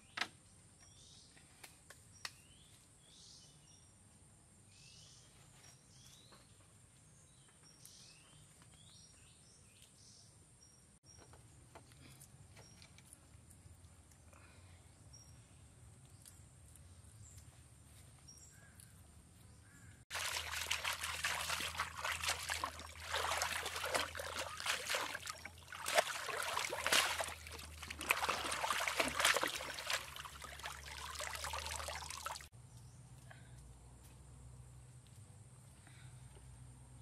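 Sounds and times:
water splashing and sloshing: 20.1s - 32.5s.

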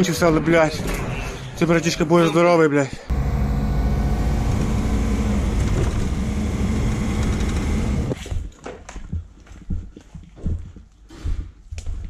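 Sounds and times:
vehicle engine running loud: 3.1s - 8.2s.

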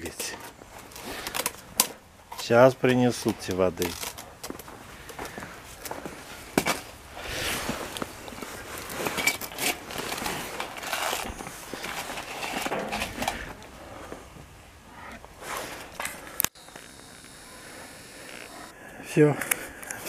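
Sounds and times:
footsteps crunching on snow: 3.2s - 14.3s.

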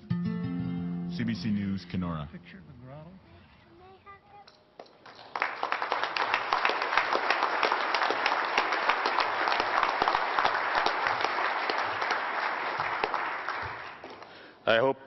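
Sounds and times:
audience applauding: 4.9s - 14.5s.

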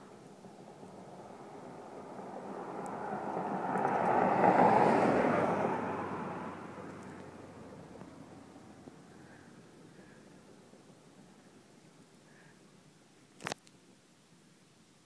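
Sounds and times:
car driving past: 0.2s - 11.2s.

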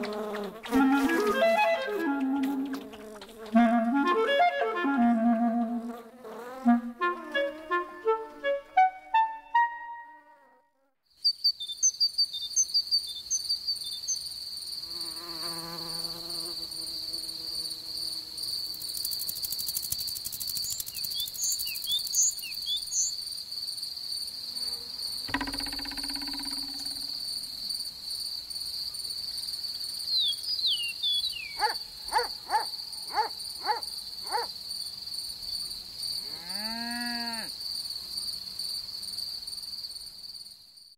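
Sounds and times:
crickets chirring: 0.0s - 8.2s, 11.1s - 40.9s
insect buzzing: 0.0s - 9.3s, 14.1s - 23.2s, 24.1s - 28.3s, 30.9s - 34.6s
arching call: 0.6s - 5.9s, 6.6s - 9.9s
quick high chirps: 25.3s - 27.2s.

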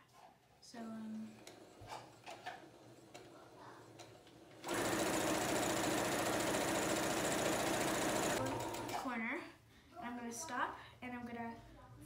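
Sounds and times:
electric sewing machine stitching: 1.4s - 9.1s.

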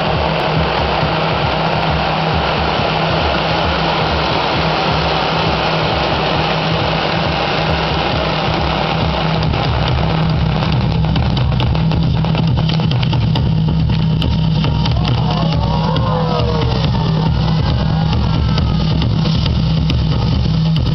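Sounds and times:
firework fountains hissing: 0.0s - 20.9s
low steady drone: 0.0s - 20.9s
sharp crackles: 0.0s - 20.9s.

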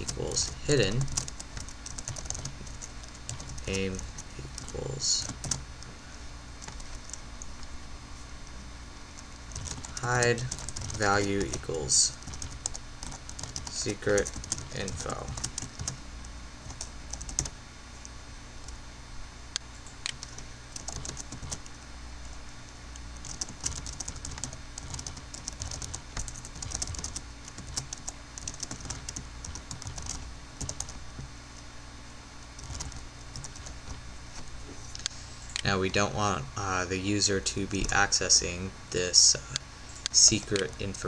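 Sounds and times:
computer keyboard typing: 0.0s - 5.6s, 6.6s - 7.6s, 9.4s - 16.0s, 16.6s - 17.5s, 20.1s - 21.7s, 23.2s - 31.3s, 32.6s - 34.0s.

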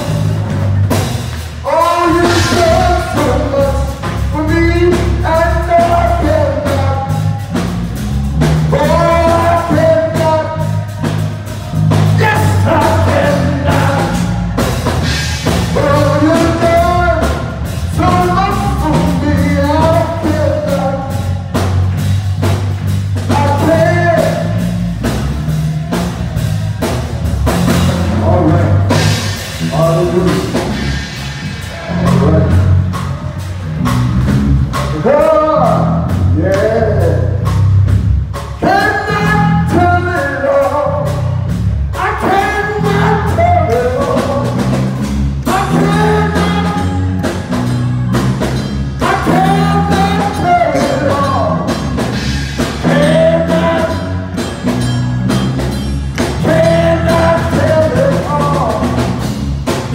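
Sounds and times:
drum kit beat: 0.0s - 59.9s
person singing gospel: 1.6s - 7.4s, 8.6s - 11.2s, 12.0s - 21.4s, 31.6s - 33.1s, 38.6s - 44.8s, 45.4s - 47.2s, 49.0s - 54.6s, 56.2s - 59.2s.

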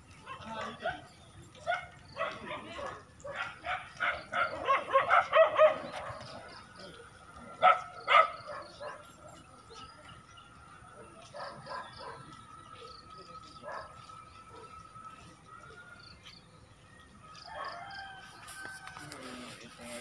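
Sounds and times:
dog barking: 1.6s - 6.3s, 7.6s - 9.1s, 11.3s - 12.3s, 13.6s - 14.8s.

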